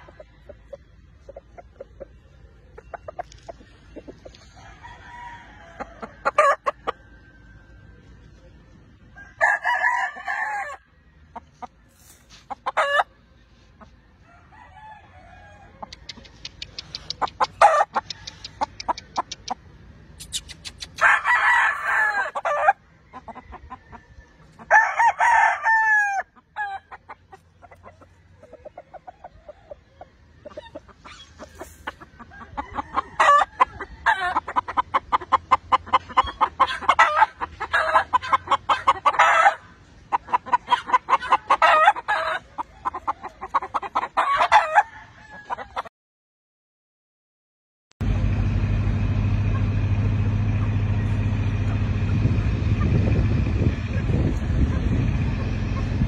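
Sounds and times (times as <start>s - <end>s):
roosters crowing: 4.1s - 8.2s, 9.0s - 13.2s, 14.1s - 19.3s, 20.3s - 39.9s, 40.6s - 45.9s, 49.6s - 56.0s
short clucks: 15.8s - 21.2s, 30.4s - 39.2s.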